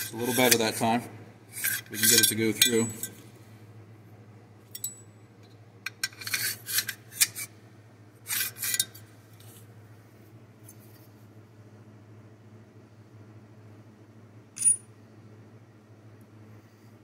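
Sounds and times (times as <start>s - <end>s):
small metal clicks and scraping: 1.6s - 3.2s, 4.7s - 7.5s.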